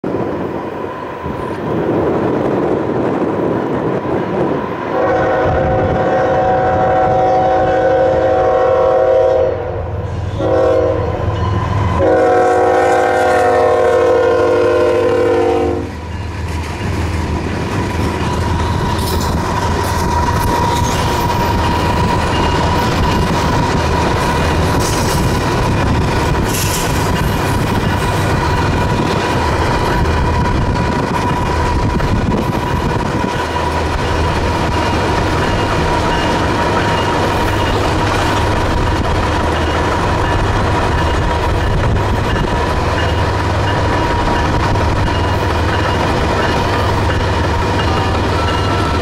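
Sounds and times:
diesel locomotive engines: 0:00.0 - 0:49.0
train wheels on rails: 0:00.0 - 0:49.0
locomotive horn blasts: 0:05.0 - 0:16.0, 0:47.8 - 0:49.0.

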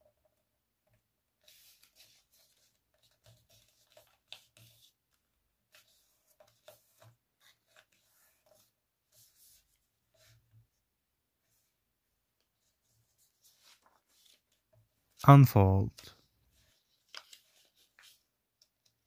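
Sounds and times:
paper rustling and crinkling: 0:01.4 - 0:10.4, 0:12.6 - 0:14.8, 0:16.5 - 0:18.3.

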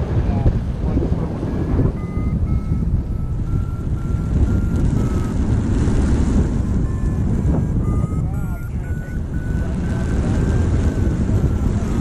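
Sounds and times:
engine roaring: 0:00.0 - 0:12.0
faint thin whine: 0:00.3 - 0:12.0.

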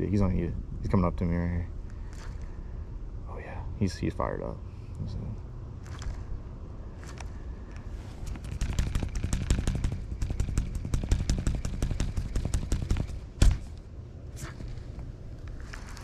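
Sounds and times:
loud thump: 0:09.1 - 0:13.7.

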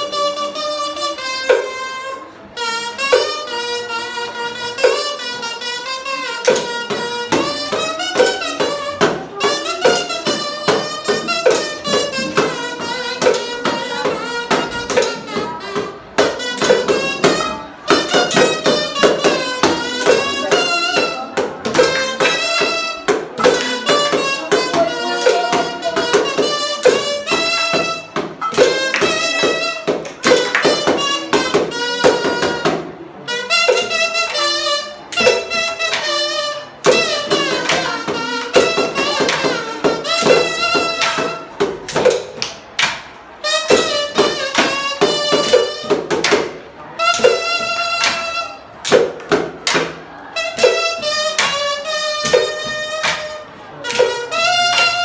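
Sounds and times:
harmonica melody: 0:00.0 - 0:41.6
hand percussion rhythm: 0:00.0 - 0:55.0.

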